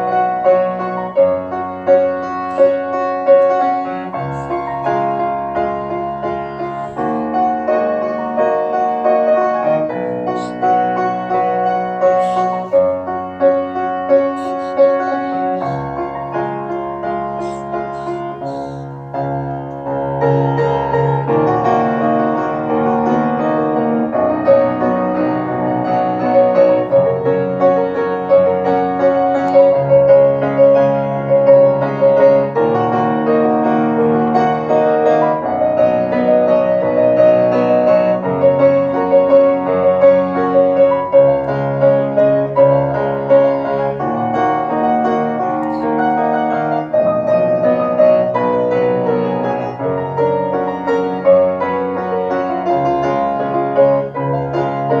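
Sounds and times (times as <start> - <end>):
solo grand piano: 0.0 - 55.0.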